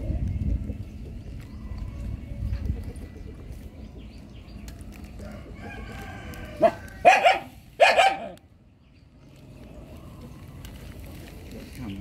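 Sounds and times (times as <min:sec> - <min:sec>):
rooster crowing: 0:05.2 - 0:07.2
dog barking: 0:06.6 - 0:08.4.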